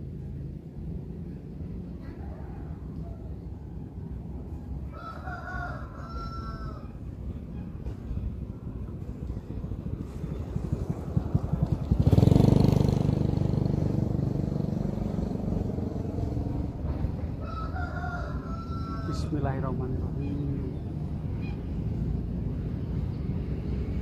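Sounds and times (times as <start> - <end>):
rooster crowing: 2.1 - 4.0, 4.8 - 7.0, 17.3 - 19.6
vehicle engine passing by: 9.3 - 24.0.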